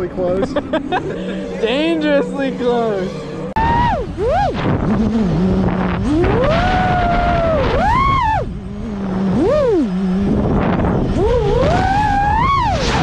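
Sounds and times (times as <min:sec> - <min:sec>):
drone motors whining: 0:00.0 - 0:13.0
rushing wind noise: 0:03.5 - 0:13.0.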